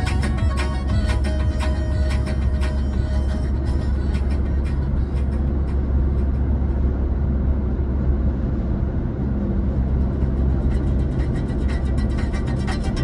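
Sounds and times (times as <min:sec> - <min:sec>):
faint car stereo music: 0:00.0 - 0:07.1, 0:09.7 - 0:13.0
car cabin road and engine rumble: 0:00.0 - 0:13.0.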